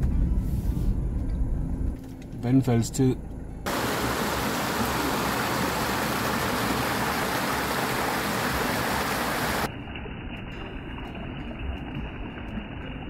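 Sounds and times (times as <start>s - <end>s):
waterfall rushing over rocks: 3.7s - 9.7s
muffled rush of water: 3.7s - 13.0s.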